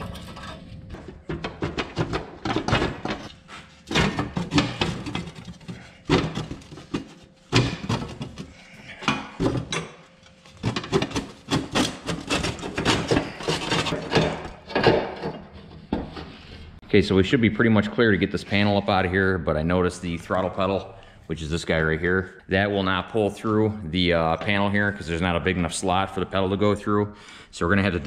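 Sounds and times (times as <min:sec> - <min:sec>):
metal floor panel rattling and scraping: 0:00.0 - 0:09.8.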